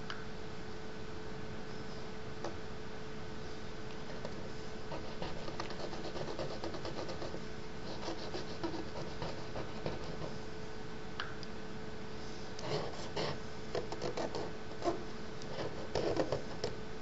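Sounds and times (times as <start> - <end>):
stick scratching on paper: 4.1 - 10.4, 12.6 - 16.8.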